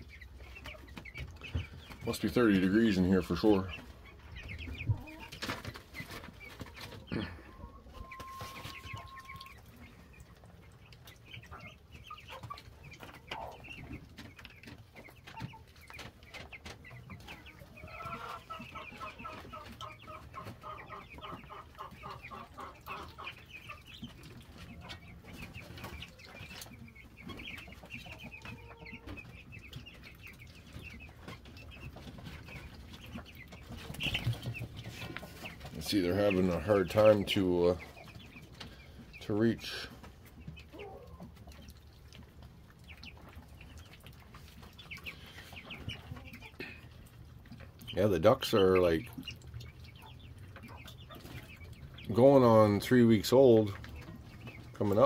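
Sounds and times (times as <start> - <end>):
chicks and ducklings cheeping: 0.0 - 55.0.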